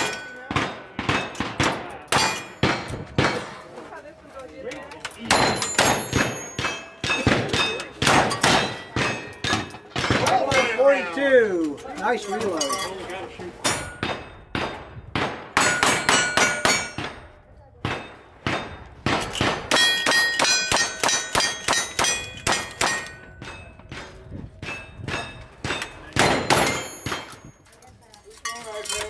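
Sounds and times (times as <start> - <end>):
metallic clang of steel targets: 0.0 - 3.6, 5.1 - 14.9, 15.6 - 27.6
rifle shots: 26.2 - 27.3.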